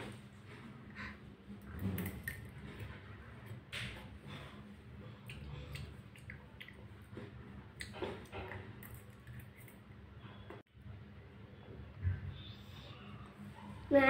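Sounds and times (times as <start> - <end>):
chewing: 5.0 - 10.0.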